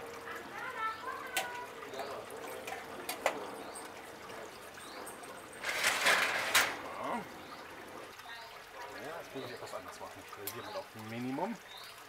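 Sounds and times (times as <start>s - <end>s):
metal drawer scraping on rails: 5.6s - 6.8s.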